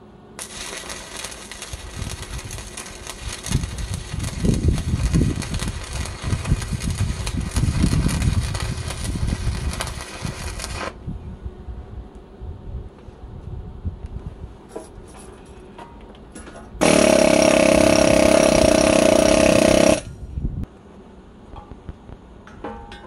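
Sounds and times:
welding arc crackling: 0.4 - 11.0, 16.8 - 20.1.

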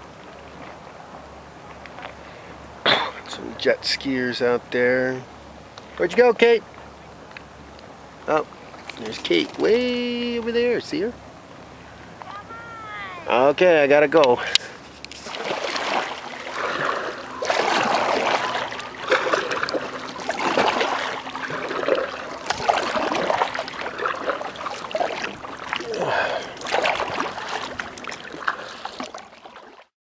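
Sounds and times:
paddle strokes splashing: 8.2 - 11.0, 14.3 - 29.9
water dripping and trickling: 17.5 - 29.8.

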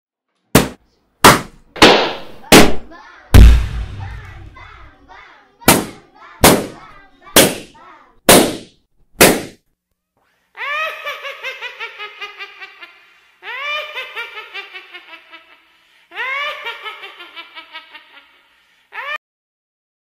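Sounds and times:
loud bangs: 3.4 - 4.8.

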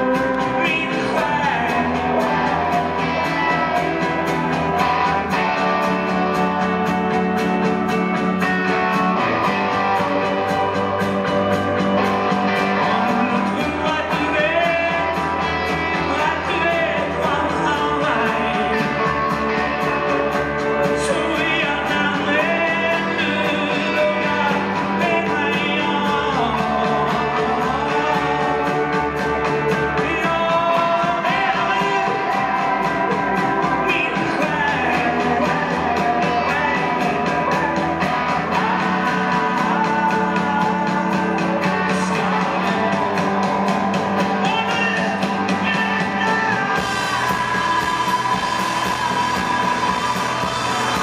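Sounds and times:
person singing: 0.0 - 51.0
rock band playing: 0.0 - 51.0.

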